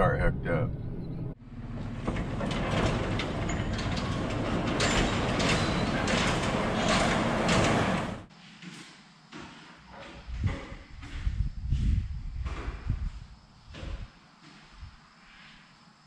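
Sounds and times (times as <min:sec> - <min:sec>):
steel overhead door rattling open: 0:01.6 - 0:08.3.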